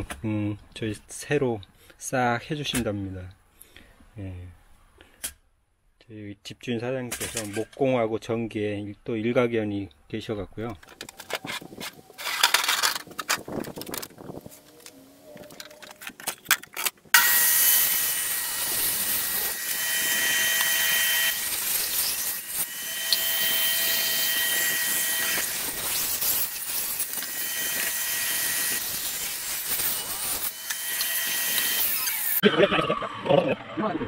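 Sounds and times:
table saw cutting plywood: 17.2s - 32.9s.

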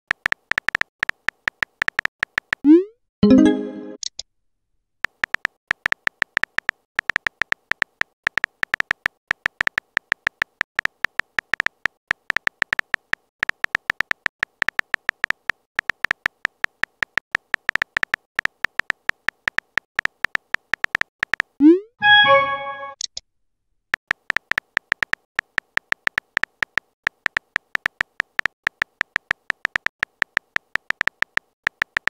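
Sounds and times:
phone keyboard clicks: 0.1s - 2.6s, 5.1s - 21.6s, 24.1s - 32.0s.

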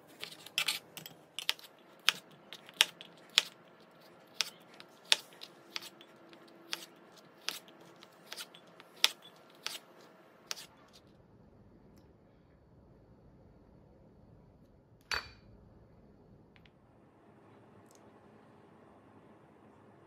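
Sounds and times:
knife chopping on cutting board: 1.4s - 9.9s, 10.5s - 10.7s.

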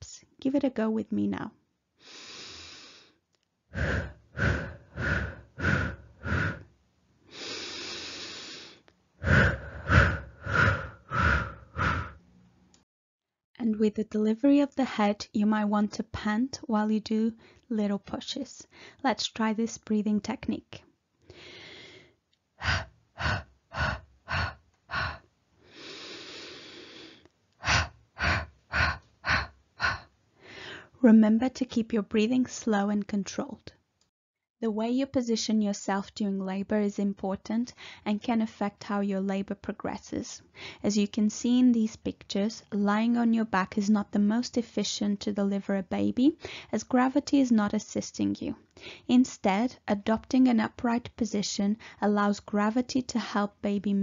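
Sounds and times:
person blowing short breaths: 2.0s - 6.7s, 7.3s - 12.3s, 21.3s - 30.9s
person breathing in: 2.0s - 6.7s, 7.3s - 12.2s, 21.3s - 31.0s
person panting: 3.7s - 6.7s, 7.3s - 12.2s, 21.3s - 30.9s.

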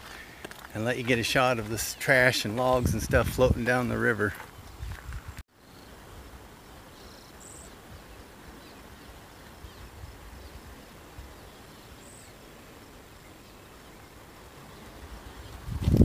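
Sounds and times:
wind rumble on microphone: 2.7s - 3.8s, 4.6s - 5.4s, 9.6s - 11.4s, 14.9s - 16.0s.

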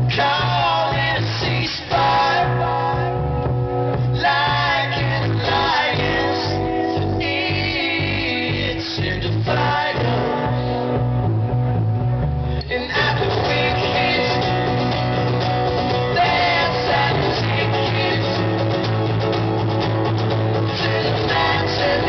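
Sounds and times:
person singing: 0.0s - 3.4s, 4.0s - 11.1s, 12.6s - 15.3s, 15.9s - 18.8s, 20.6s - 22.0s
acoustic guitars strummed: 0.0s - 22.0s.

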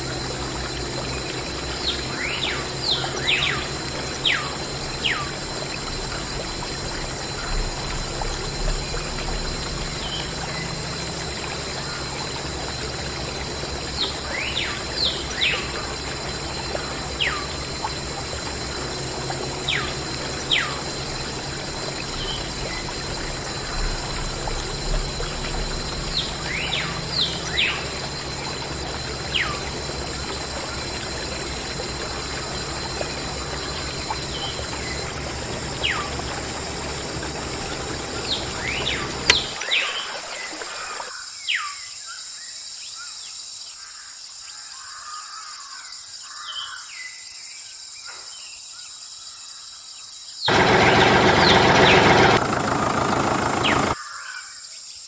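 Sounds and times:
water trickling and pouring: 0.0s - 41.2s.

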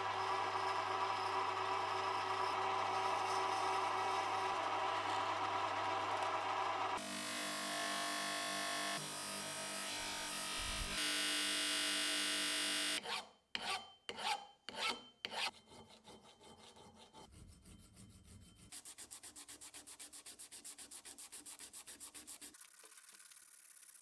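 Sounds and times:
file scraping metal: 13.0s - 22.4s.

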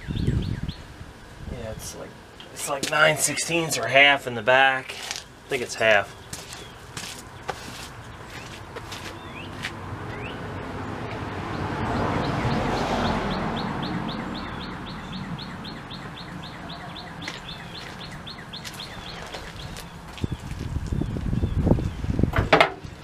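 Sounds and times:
bird singing rapid trill: 9.1s - 10.5s, 11.5s - 22.0s.

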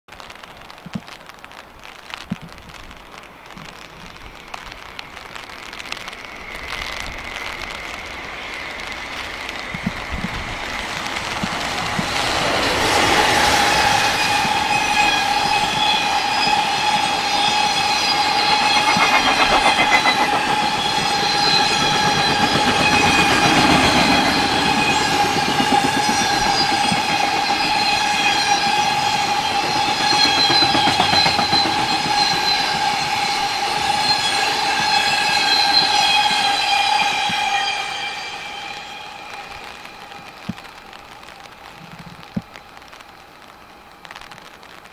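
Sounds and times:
light rain: 0.1s - 20.8s, 30.9s - 44.9s
high-pitched whine: 4.2s - 44.8s
freight train rumble: 7.4s - 40.4s.

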